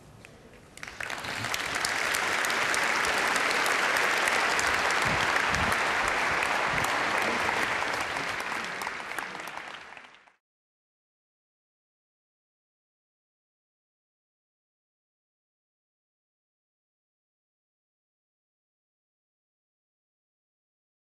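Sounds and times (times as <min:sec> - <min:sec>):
audience applauding: 0:00.8 - 0:10.4.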